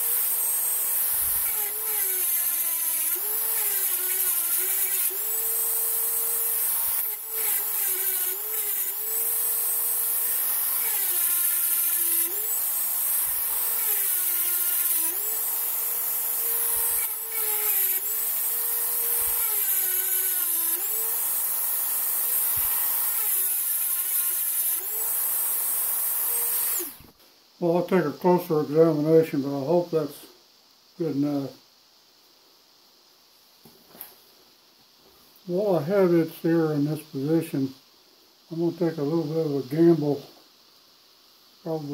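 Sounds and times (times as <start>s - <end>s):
rotary tool grinding steel: 0.0s - 27.0s.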